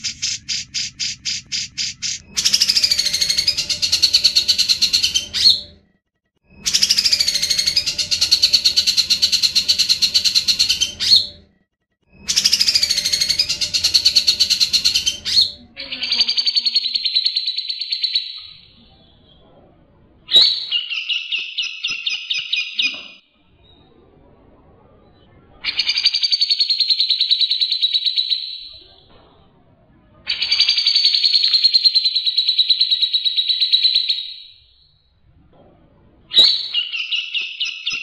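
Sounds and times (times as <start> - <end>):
bird singing rolling trills: 0.0 - 5.8, 6.5 - 11.4, 12.1 - 19.5.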